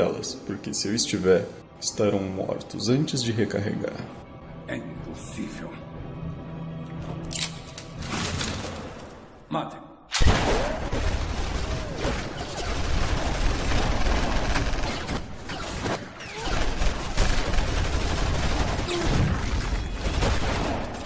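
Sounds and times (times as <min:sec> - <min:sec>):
volley of gunfire: 0:10.2 - 0:21.0.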